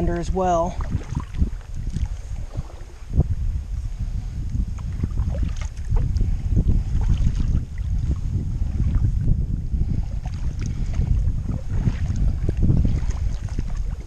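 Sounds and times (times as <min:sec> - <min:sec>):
wind rumbling on microphone: 0:00.0 - 0:14.0
paddle splashing in water: 0:00.7 - 0:03.2, 0:04.8 - 0:06.3, 0:06.9 - 0:09.1, 0:10.0 - 0:14.0.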